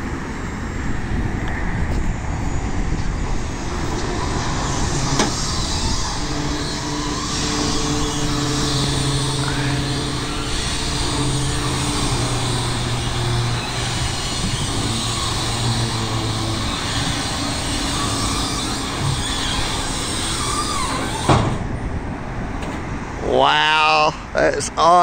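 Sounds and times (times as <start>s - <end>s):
constant rushing noise: 0.0s - 25.0s
hydraulic pump humming: 1.9s - 21.8s.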